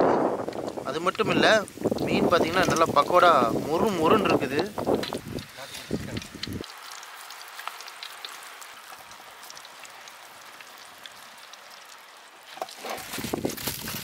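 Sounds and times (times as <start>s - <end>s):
fried snacks crackling: 0.4s - 14.0s
hand crunching through snacks: 12.6s - 14.0s.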